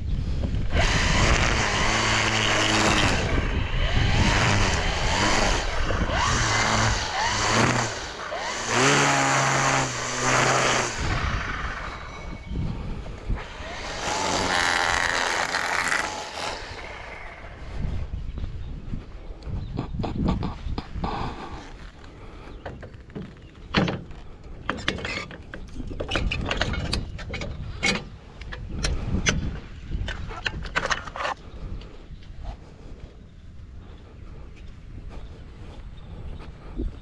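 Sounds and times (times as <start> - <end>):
string trimmer cutting grass: 0.2 - 18.1, 19.8 - 22.8.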